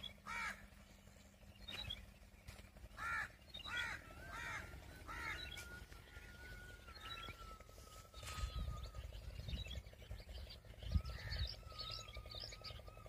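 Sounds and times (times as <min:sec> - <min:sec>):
faint low rumble: 0:00.0 - 0:13.0
crow cawing: 0:00.2 - 0:00.8, 0:02.9 - 0:08.4.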